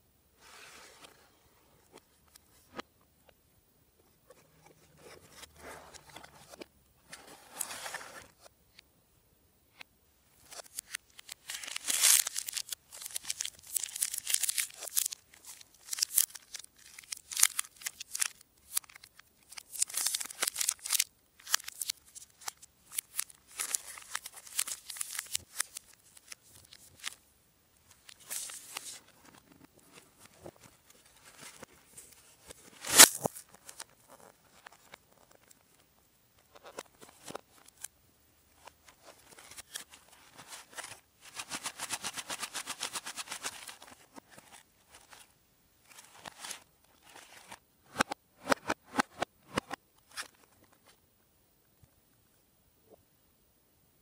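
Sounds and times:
plastic wrapper crinkling: 10.5 - 27.2.

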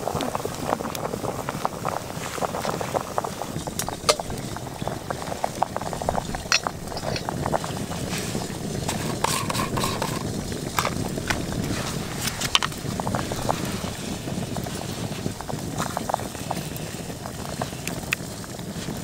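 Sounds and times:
pot boiling and bubbling: 0.0 - 19.0
sharp clicks and ticks: 3.7 - 7.6.

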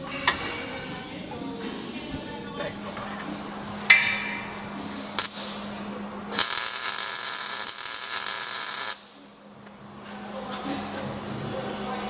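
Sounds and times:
metal clank: 3.8 - 4.6
welder arc crackling: 5.1 - 9.2.

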